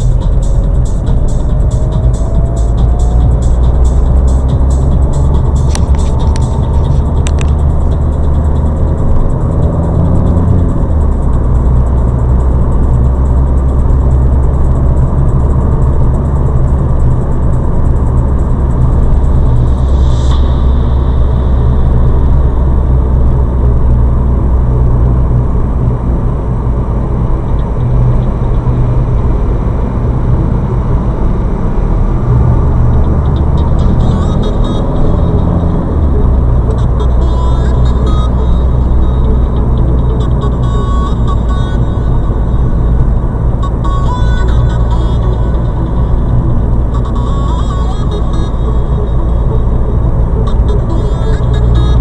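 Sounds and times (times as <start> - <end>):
car road and engine rumble: 0.0 - 52.0
brief high-pitched tone: 18.9 - 22.9.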